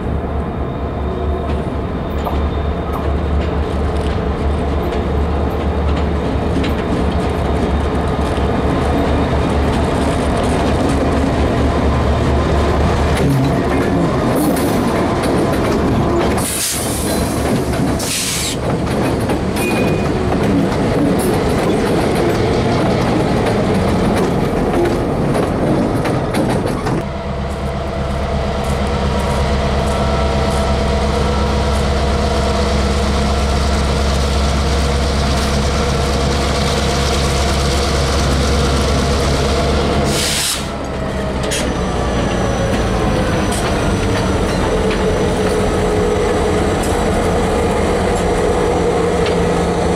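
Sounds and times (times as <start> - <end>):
diesel locomotives droning: 0.0 - 49.9
air hiss bursts: 16.4 - 17.4, 18.0 - 18.6, 40.1 - 40.7.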